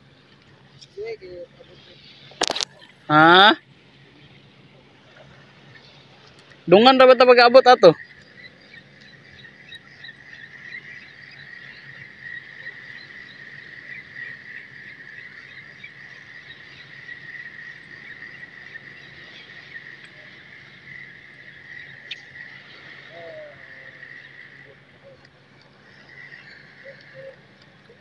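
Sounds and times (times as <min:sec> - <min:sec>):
chorus of small calling animals: 0:06.7 - 0:28.0.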